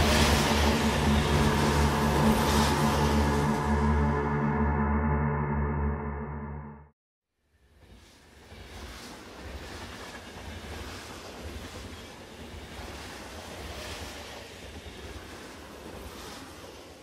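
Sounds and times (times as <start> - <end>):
steady rushing noise: 0.0 - 4.7
deep rumble: 0.0 - 6.9.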